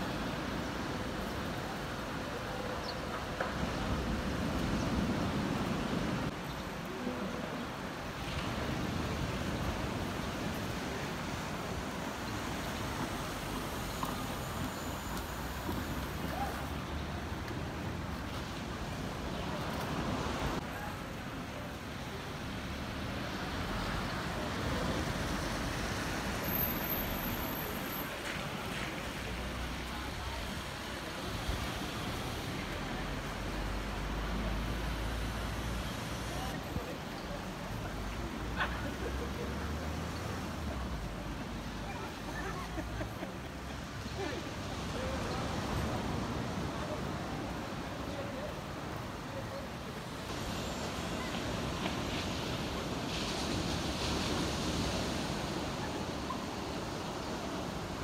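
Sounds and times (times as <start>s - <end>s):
outdoor seafront background noise: 0.0s - 58.0s
rumble of passing vehicles: 22.0s - 49.1s.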